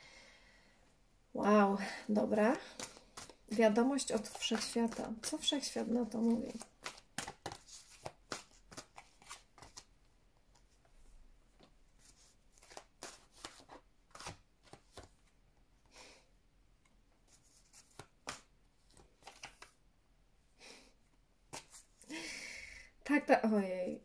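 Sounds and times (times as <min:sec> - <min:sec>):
cards sliding: 0:02.7 - 0:05.4, 0:06.5 - 0:09.9, 0:12.0 - 0:15.1, 0:17.6 - 0:19.7.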